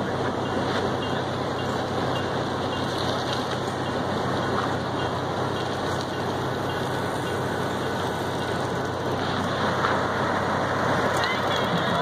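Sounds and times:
locomotive engine low hum: 0:00.0 - 0:12.0.

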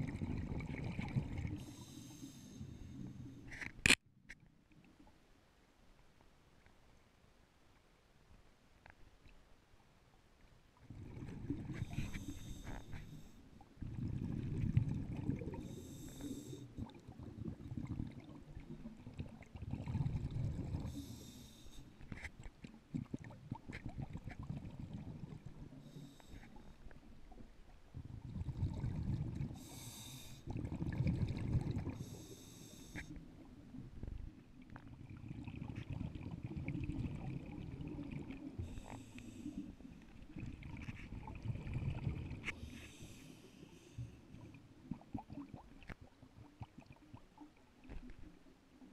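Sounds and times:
exhaled air bubbling underwater: 0:00.0 - 0:03.5, 0:10.8 - 0:48.9
scuba regulator hissing inhalations: 0:01.6 - 0:03.6, 0:11.8 - 0:13.4, 0:15.6 - 0:16.7, 0:20.8 - 0:22.0, 0:25.8 - 0:26.7, 0:29.6 - 0:30.5, 0:31.9 - 0:33.2, 0:38.6 - 0:39.7, 0:42.5 - 0:44.2.

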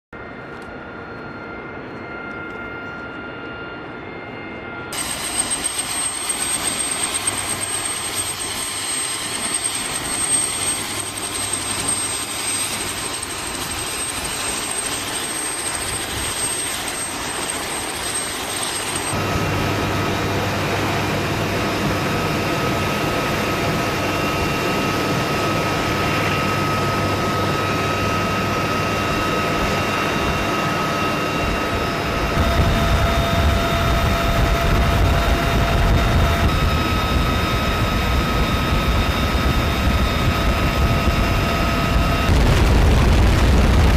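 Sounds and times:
helicopter engine whine and rotor: 0:00.2 - 0:43.9.

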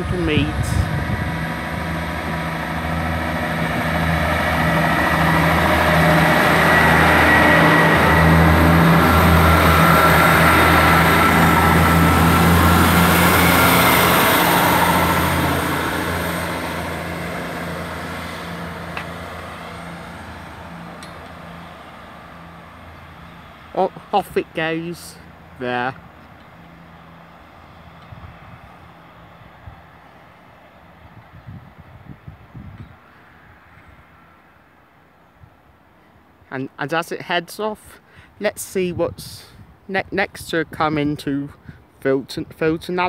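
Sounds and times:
diesel train engine throbbing: 0:00.0 - 0:32.3.

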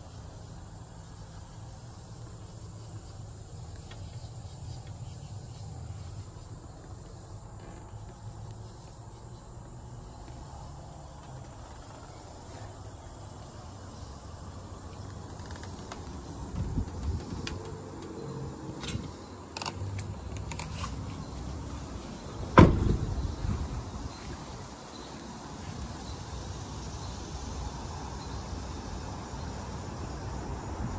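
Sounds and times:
truck door slamming: 0:22.4 - 0:23.4.

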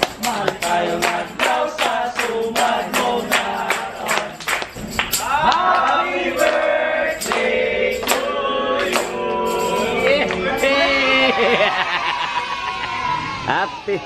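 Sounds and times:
hand claps: 0:00.0 - 0:09.2
group singing a celebration song: 0:00.0 - 0:11.6.

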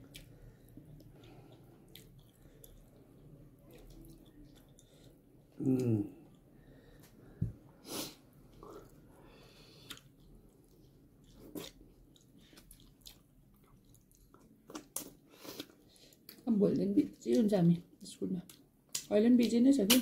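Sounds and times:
close chewing: 0:00.0 - 0:05.2, 0:09.8 - 0:16.4.

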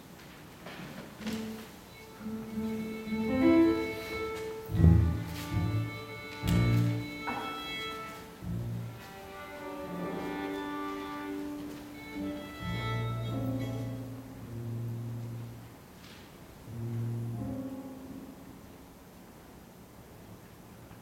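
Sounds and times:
violin slow melody: 0:01.4 - 0:15.4
keyboard accompaniment: 0:01.4 - 0:15.6.

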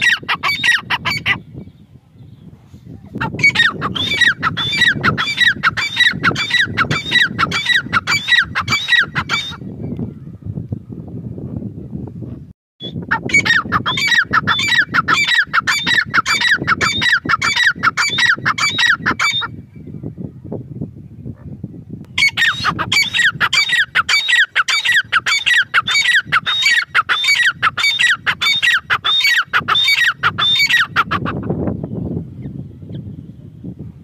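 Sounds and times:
francolin calling: 0:03.4 - 0:09.6, 0:22.1 - 0:31.2.

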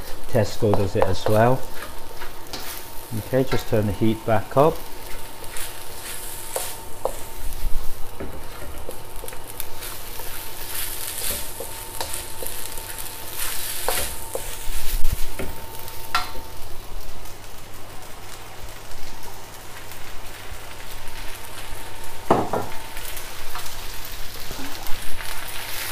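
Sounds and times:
rice sizzling in wok: 0:00.0 - 0:25.9
wooden spatula scraping pan: 0:05.0 - 0:15.4.

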